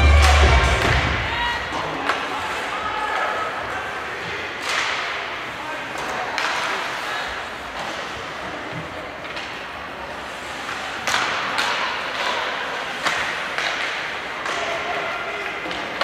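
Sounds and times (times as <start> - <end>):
hockey sticks and puck clacking: 0.0 - 16.0.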